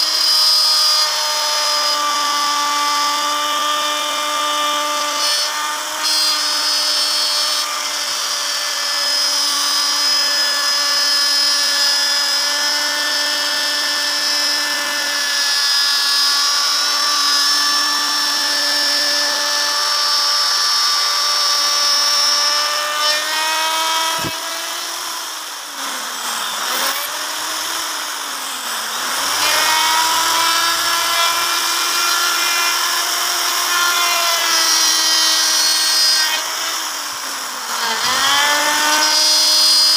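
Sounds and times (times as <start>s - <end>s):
router motor whining: 0.0s - 39.9s.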